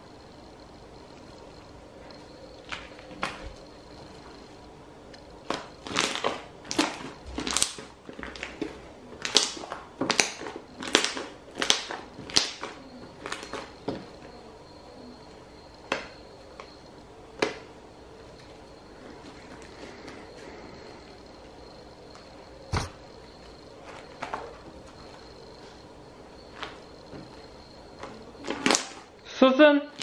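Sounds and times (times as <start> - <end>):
slime crackling pops: 9.2 - 13.6.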